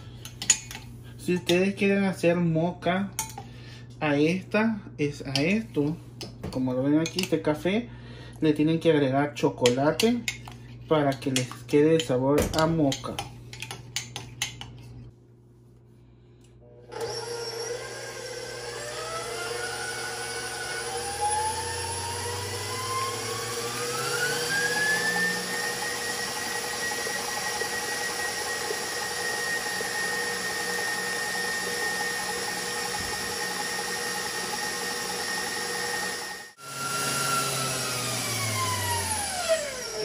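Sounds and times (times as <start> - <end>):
wire whisk beating eggs: 9.6 - 14.9, 20.4 - 36.4
stand mixer motor whine: 16.7 - 40.0.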